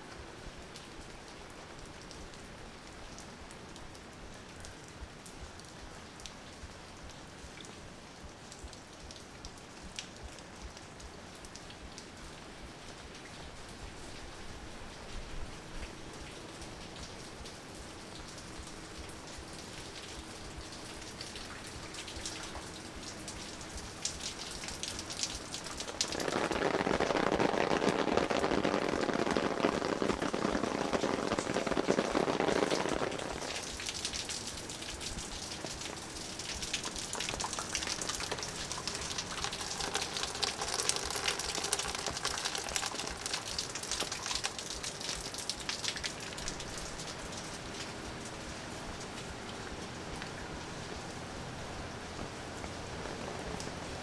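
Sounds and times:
rain falling: 0.0s - 54.0s
close drops pattering: 25.6s - 34.0s.

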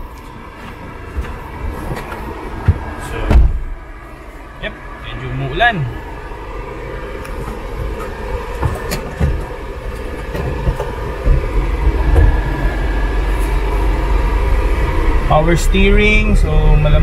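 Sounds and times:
small truck engine rumble: 0.0s - 17.0s.

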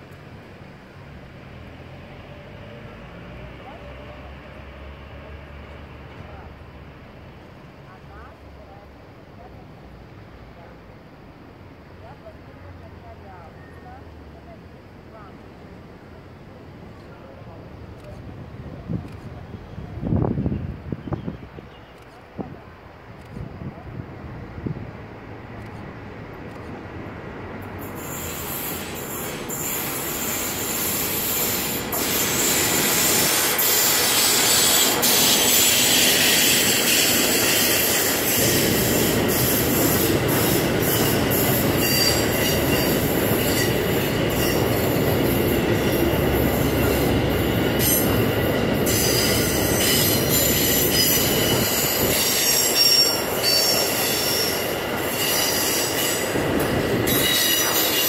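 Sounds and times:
freight train passing: 0.0s - 58.0s
wheel squeal: 28.0s - 39.6s, 40.9s - 44.8s, 48.9s - 56.3s, 57.1s - 58.0s.

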